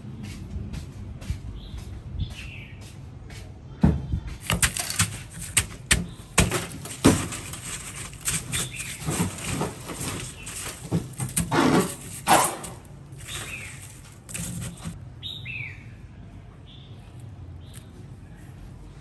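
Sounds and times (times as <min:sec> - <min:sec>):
crushed ice crunching: 0:04.4 - 0:15.0.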